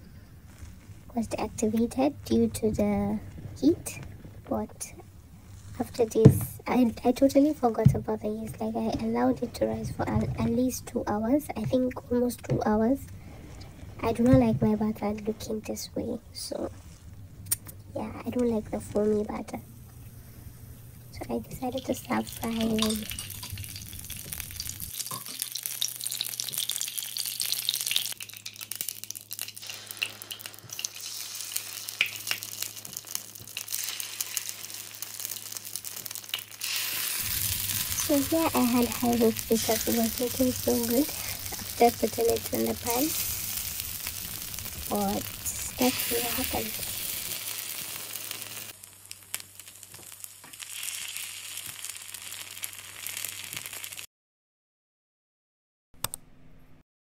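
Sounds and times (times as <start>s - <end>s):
low steady hum: 0.0s - 25.0s, 36.7s - 49.2s
hot oil sizzling and crackling: 18.6s - 54.1s.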